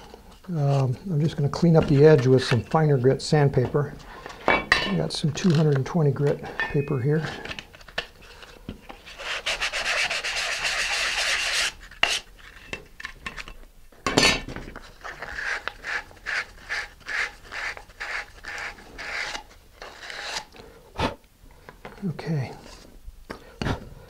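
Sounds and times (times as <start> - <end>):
sandpaper rasping on plastic: 9.1 - 12.3, 15.0 - 20.5.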